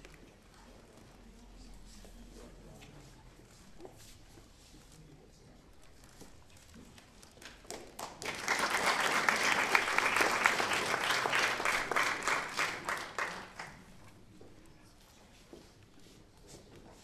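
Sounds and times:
audience applauding: 7.8s - 13.9s.

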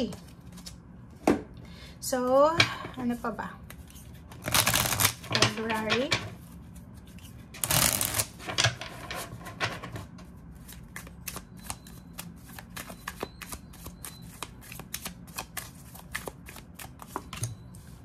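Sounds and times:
cards being shuffled by hand: 3.6s - 17.9s.

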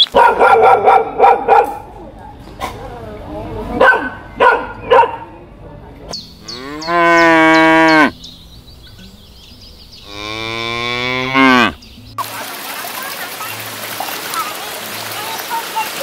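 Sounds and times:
cattle mooing: 6.4s - 8.2s, 10.0s - 11.8s.

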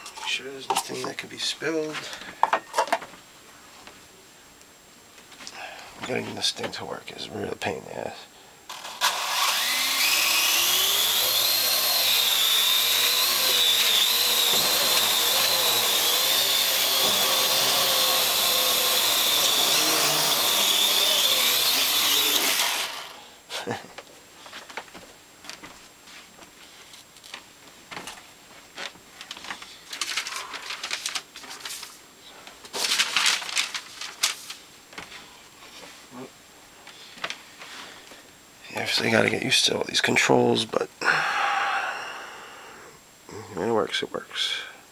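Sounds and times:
drone rotors whining: 9.0s - 23.2s.

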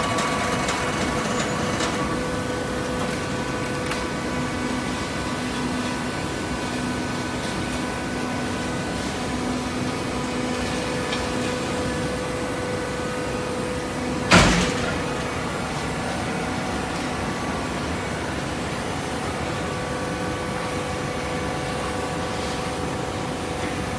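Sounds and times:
loud clunk: 14.3s - 15.2s.

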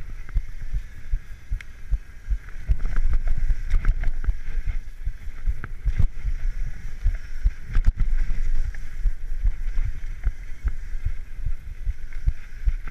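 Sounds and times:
mountain bike rolling on dirt: 0.0s - 12.9s
steady hiss: 0.0s - 12.9s
bike rattling over bumps: 0.1s - 12.9s.

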